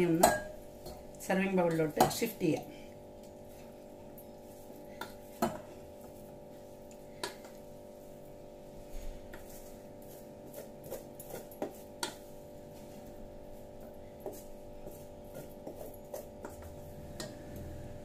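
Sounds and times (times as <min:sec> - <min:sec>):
spoon clinking and scraping pot: 0:00.0 - 0:01.1.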